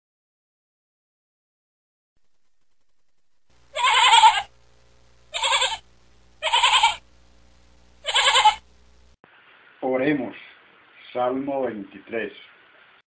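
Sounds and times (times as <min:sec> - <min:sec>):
sheep bleating: 0:03.7 - 0:04.5, 0:05.3 - 0:05.8, 0:06.4 - 0:07.0, 0:08.0 - 0:08.6.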